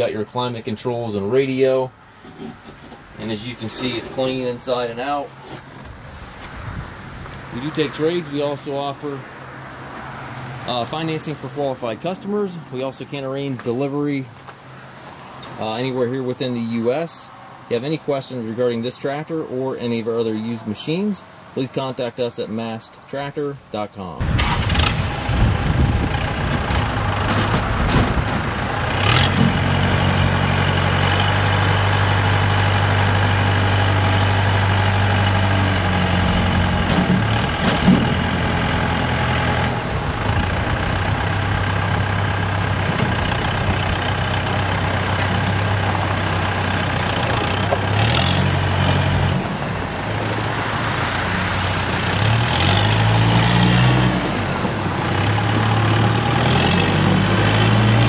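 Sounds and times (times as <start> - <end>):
tractor diesel engine running: 0.0 - 9.9, 24.2 - 58.0.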